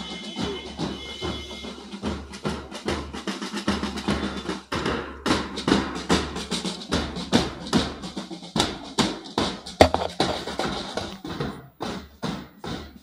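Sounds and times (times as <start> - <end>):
marching snare and bass drums: 0.0 - 13.0.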